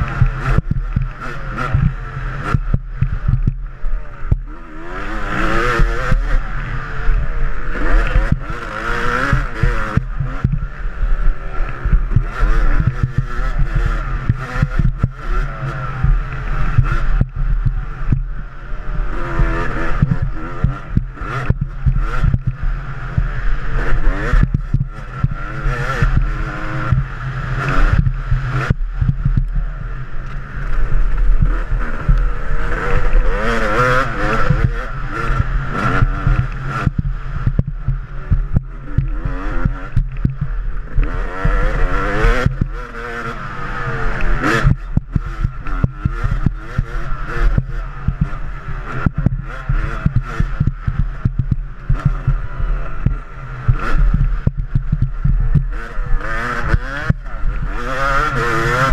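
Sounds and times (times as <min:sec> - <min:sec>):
dirt bike engine revving: 0:00.0 - 0:58.9.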